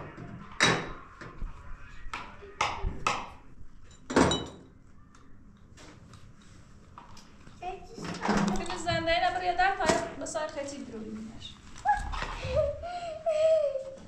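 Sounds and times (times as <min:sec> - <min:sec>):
sharp knocks and clinks: 0:03.8 - 0:04.7.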